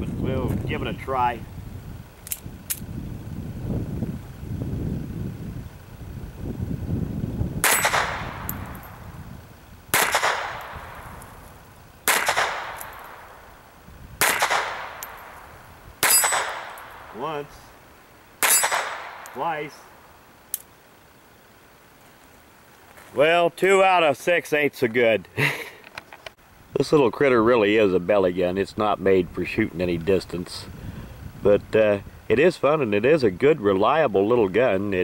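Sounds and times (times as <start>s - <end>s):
pistol shots: 7.6s - 8.7s, 9.9s - 11.1s, 12.0s - 13.4s, 14.2s - 15.4s, 16.0s - 17.2s, 18.4s - 19.4s
bullets hitting steel plate: 7.6s - 9.0s, 12.1s - 13.3s, 14.2s - 15.4s, 16.0s - 17.2s, 18.4s - 19.4s.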